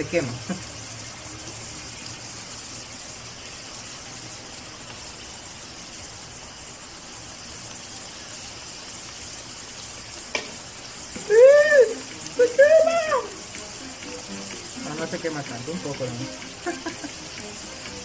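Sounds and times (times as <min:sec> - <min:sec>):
hot oil sizzling: 0:00.0 - 0:18.0
high-pitched cry: 0:11.2 - 0:13.4.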